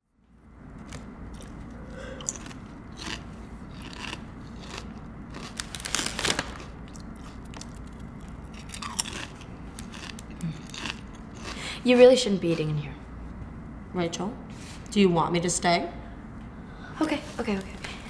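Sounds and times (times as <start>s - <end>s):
potato chips crunching: 0.8s - 11.7s
foil bag crinkling: 5.4s - 6.8s.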